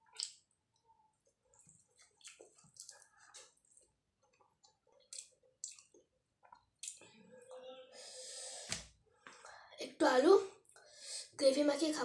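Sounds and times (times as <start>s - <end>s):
chewing and lip-smacking: 1.2s - 7.1s.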